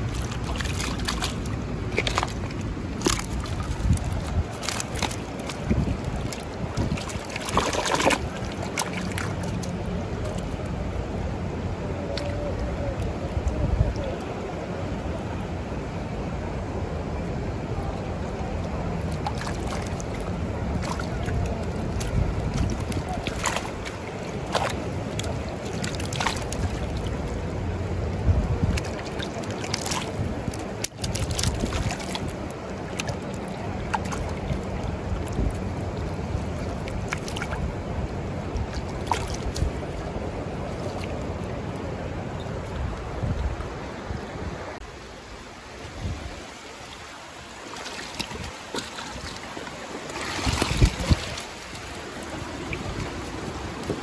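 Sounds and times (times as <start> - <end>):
sharp clicks and splashes: 0.0 - 10.9, 18.5 - 43.7, 47.4 - 54.0
wind on microphone: 0.0 - 47.1, 48.0 - 54.0
creek rushing: 0.0 - 54.0.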